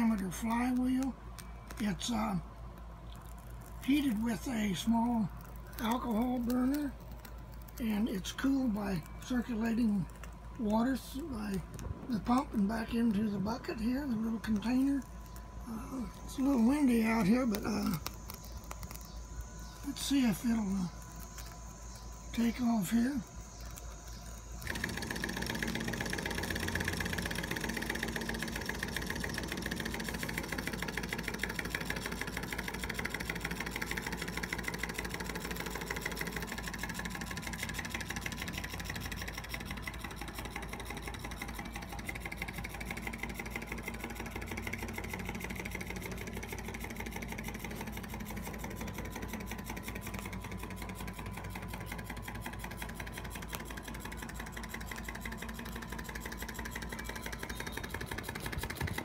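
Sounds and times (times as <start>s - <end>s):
model engine mechanical clatter: 24.6s - 59.0s.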